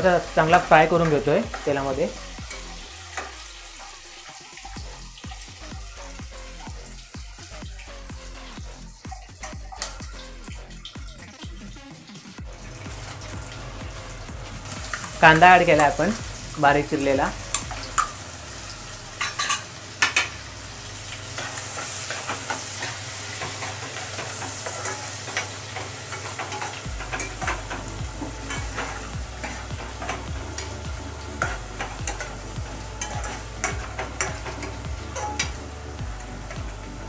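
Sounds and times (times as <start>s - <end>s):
onion sizzling in hot oil: 0.0s - 37.0s
steel ladle scraping a pan: 17.5s - 37.0s.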